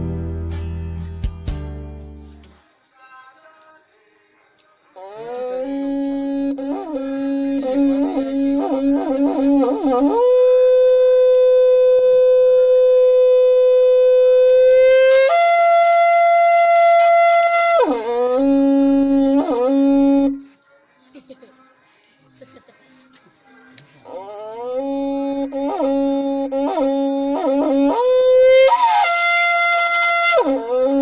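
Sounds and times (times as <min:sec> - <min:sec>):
buffalo horn blowing: 0:05.0 - 0:20.5, 0:24.1 - 0:31.0.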